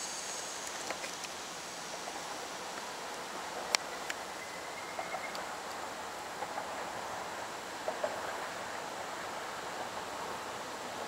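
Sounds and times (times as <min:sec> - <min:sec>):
outdoor background hiss: 0:00.0 - 0:11.0
faint soft ticks: 0:03.6 - 0:04.2, 0:04.9 - 0:05.8.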